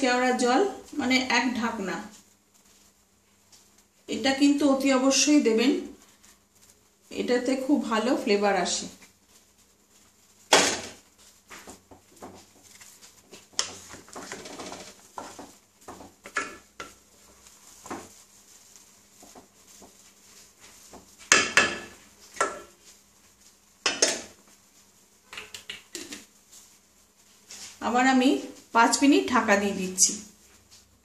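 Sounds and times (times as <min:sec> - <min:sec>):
wooden spatula scraping pot: 0:10.9 - 0:22.9.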